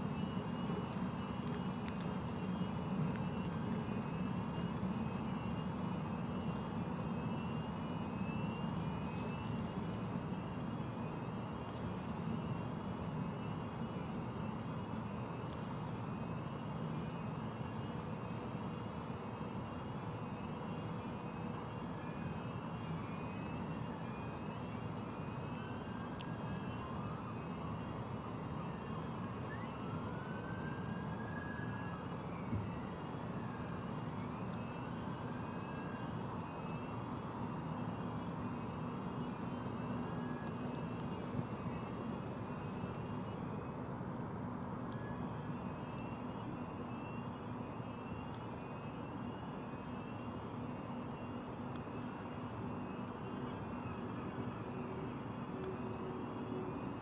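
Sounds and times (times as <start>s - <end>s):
faint rising and falling wails: 21.5s - 57.0s.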